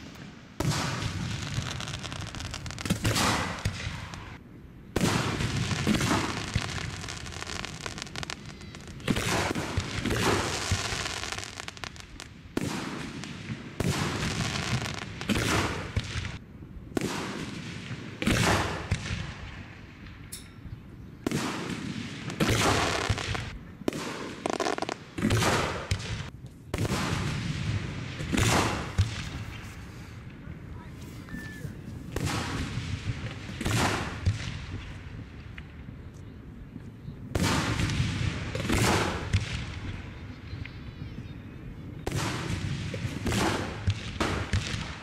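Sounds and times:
fireworks booming with echo: 0:00.0 - 0:20.4, 0:21.2 - 0:30.8, 0:31.6 - 0:36.2, 0:37.2 - 0:41.2, 0:41.8 - 0:45.0.

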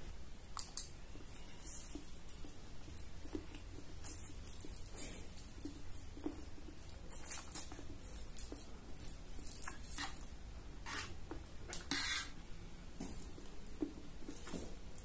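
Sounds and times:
chewing: 0:00.5 - 0:10.3.

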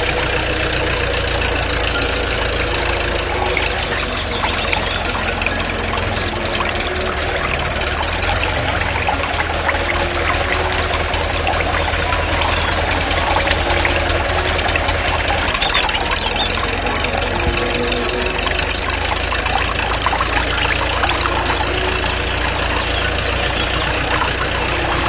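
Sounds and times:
small engine running: 0:00.0 - 0:25.0.

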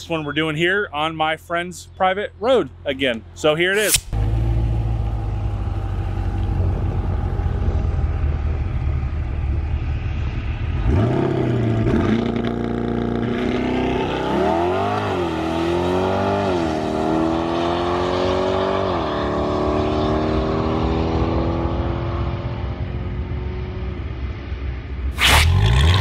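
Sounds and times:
sports car engine accelerating: 0:04.0 - 0:23.9.

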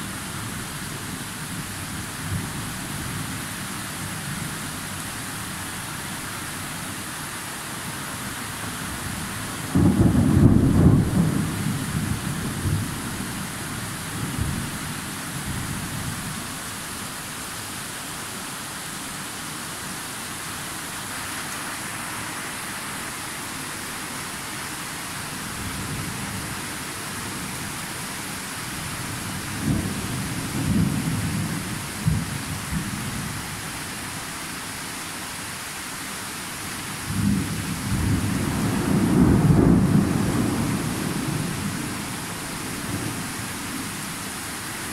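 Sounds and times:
rain hiss: 0:00.0 - 0:44.9
rolling thunder: 0:09.7 - 0:13.0, 0:37.1 - 0:43.3.

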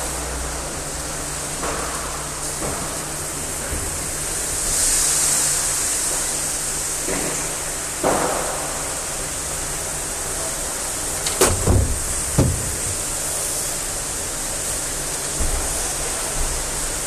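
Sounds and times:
shower water spraying: 0:08.8 - 0:17.0
dull knocks: 0:11.4 - 0:13.1.

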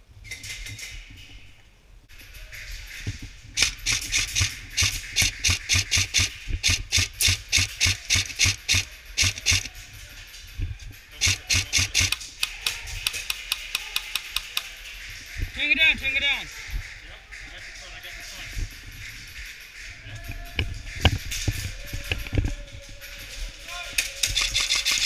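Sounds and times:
airsoft rifle firing shots: 0:03.6 - 0:09.7, 0:11.2 - 0:14.6.

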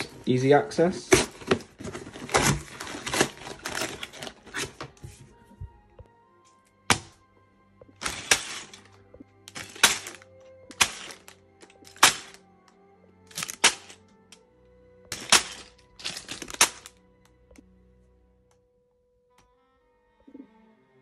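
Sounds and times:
loose plastic bricks rattling: 0:00.0 - 0:04.8, 0:08.0 - 0:08.9, 0:09.5 - 0:12.4, 0:13.3 - 0:14.0, 0:15.1 - 0:17.0
plastic bags crinkling: 0:00.0 - 0:05.0, 0:07.9 - 0:12.4, 0:13.3 - 0:14.0, 0:15.1 - 0:17.0.

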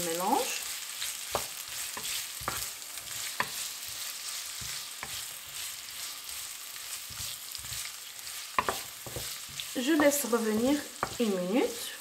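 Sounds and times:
onions sizzling in oil: 0:00.0 - 0:12.0
wooden spatula scraping a pan: 0:00.4 - 0:12.0.

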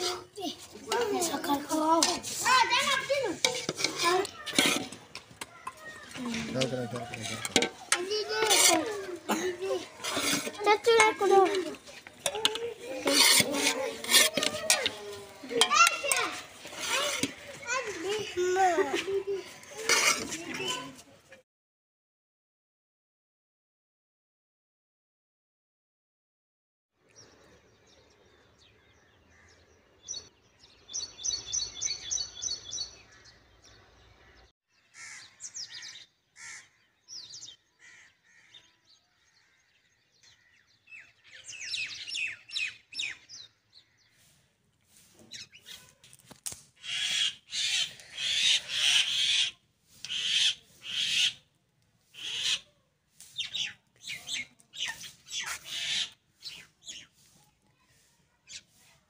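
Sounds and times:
birds chirping: 0:27.0 - 0:46.0, 0:46.8 - 0:57.9
sharp repeated bird calls: 0:30.9 - 0:38.9, 0:46.8 - 0:57.1.

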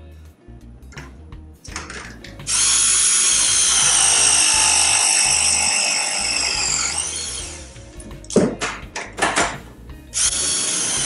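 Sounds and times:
press tool motor whining: 0:02.5 - 0:07.8, 0:10.2 - 0:11.0.

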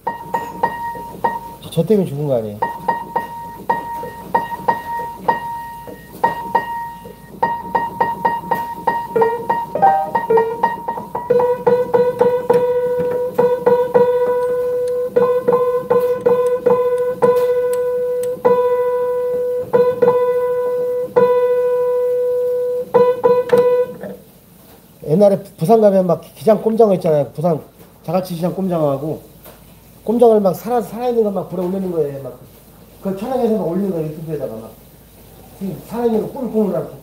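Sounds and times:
piano key struck repeatedly: 0:00.0 - 0:01.6, 0:02.6 - 0:24.0.

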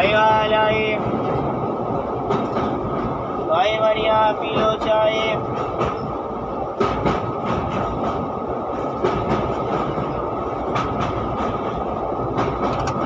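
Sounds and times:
train wheels rumbling on rail: 0:00.0 - 0:13.0
wheels clicking over rail joints: 0:04.3 - 0:13.0.

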